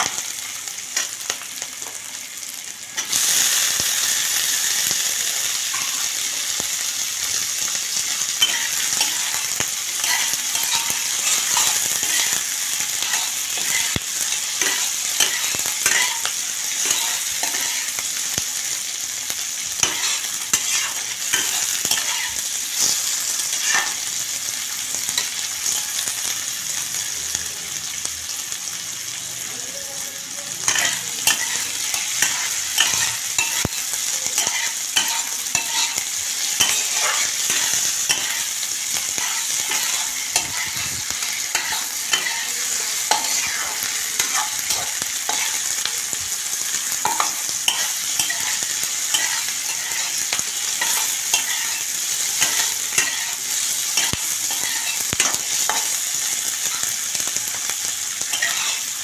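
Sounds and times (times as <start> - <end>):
vegetables sizzling in oil: 0.0 - 59.0
spatula scraping a pan: 8.4 - 18.0, 19.8 - 24.0, 30.6 - 45.7, 47.0 - 56.8, 58.3 - 58.9.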